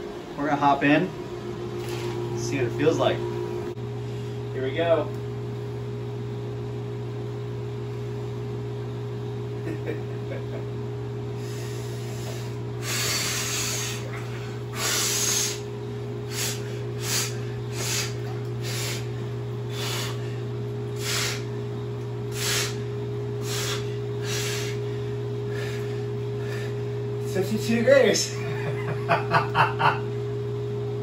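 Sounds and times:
chiller and pump humming: 0.0 - 31.0
man taking sharp breaths: 11.4 - 15.7, 16.3 - 20.3, 21.0 - 21.5, 22.3 - 22.8, 23.4 - 26.9.

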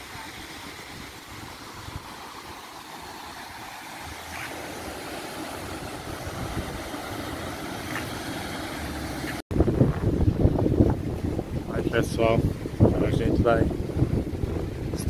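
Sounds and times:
river and waterfall rushing: 0.0 - 9.4.

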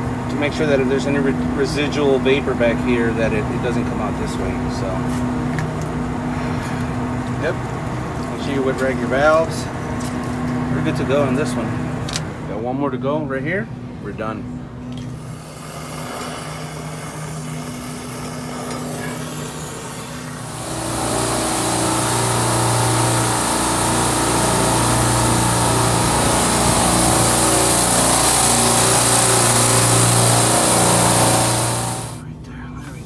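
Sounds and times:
quieter steady hum: 0.0 - 33.0
vacuum pump motor hum with hiss: 15.0 - 33.0.

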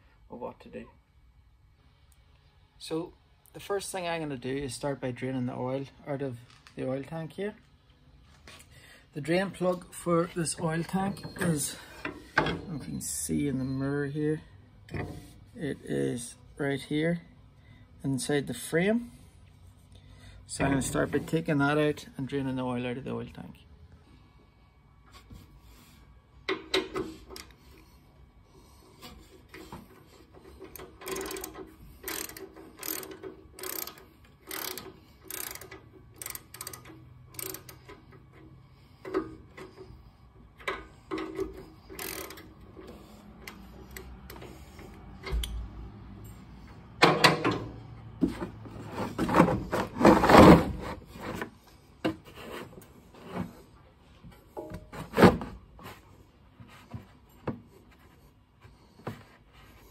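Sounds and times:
ratchet clicking: 30.5 - 39.6, 40.6 - 44.8.

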